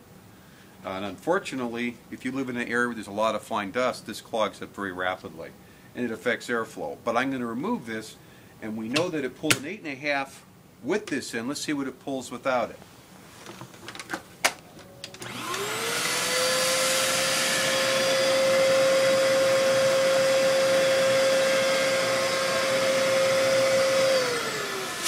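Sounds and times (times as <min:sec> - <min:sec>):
vacuum cleaner motor whine: 0:14.8 - 0:25.0.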